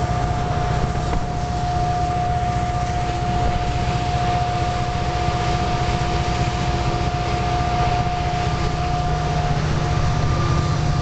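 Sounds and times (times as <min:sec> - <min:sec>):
high whine: 0:00.0 - 0:11.0
locomotive engine drone: 0:00.0 - 0:11.0.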